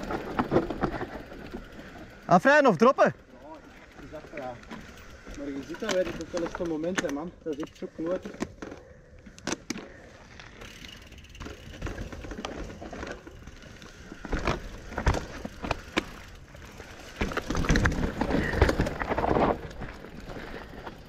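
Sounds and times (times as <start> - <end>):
bike tyres rumbling over dirt: 0.0 - 2.3, 9.9 - 21.0
bike frame clicking and rattling: 0.0 - 21.0.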